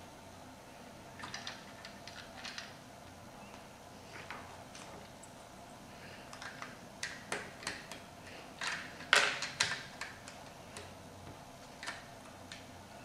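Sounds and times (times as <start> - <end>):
plastic bricks clicking together: 8.6 - 10.9.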